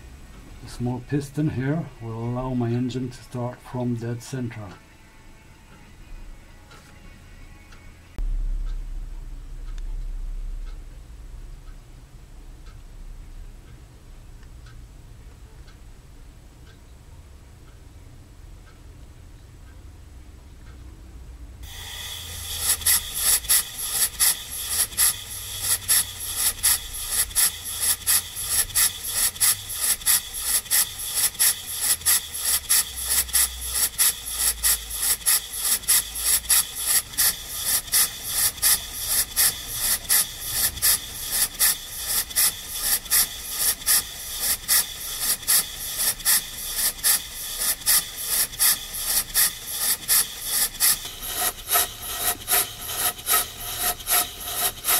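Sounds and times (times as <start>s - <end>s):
steady high hiss: 8.1s - 20.2s, 21.4s - 54.9s
model steam engine exhaust chuffs: 21.5s - 54.9s.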